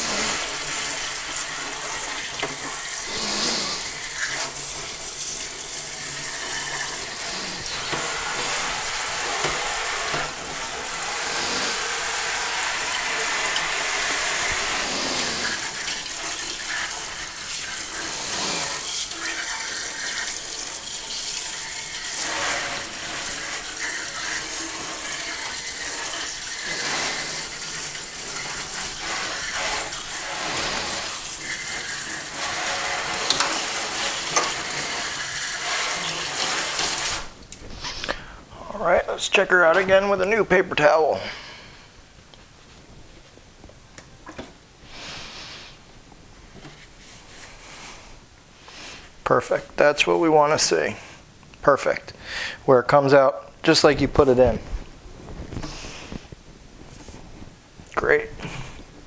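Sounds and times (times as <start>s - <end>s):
brush scrubbing metal cylinder: 0.0s - 37.3s
water running into steel sink: 0.0s - 37.4s.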